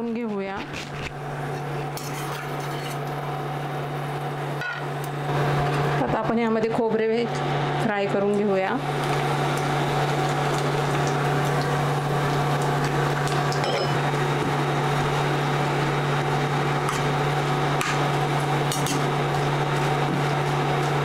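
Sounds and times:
low electrical hum: 0.0s - 21.0s
oil sizzling: 8.8s - 21.0s.

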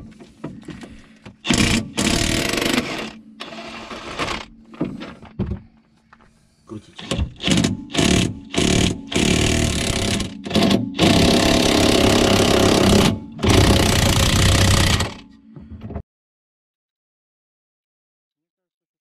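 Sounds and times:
impact wrench hammering: 1.4s - 3.2s, 7.0s - 15.2s.

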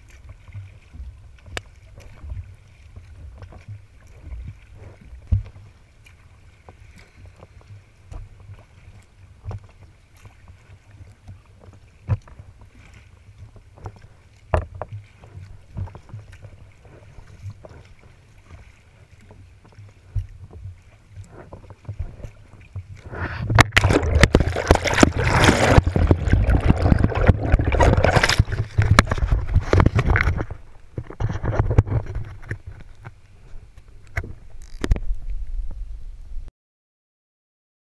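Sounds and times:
water lapping along kayak hull: 0.0s - 36.5s
wind rumbling on microphone: 19.6s - 36.5s
loud rushing water noise: 23.1s - 30.4s.

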